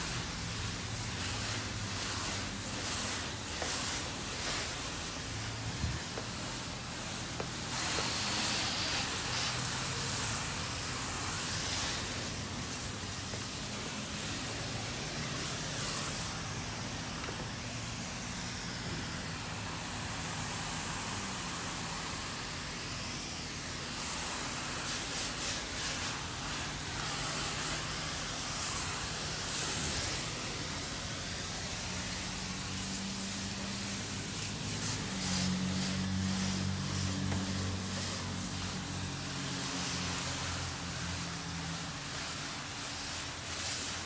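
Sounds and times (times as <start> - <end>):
pressure washer water jet hissing: 0.0 - 44.0.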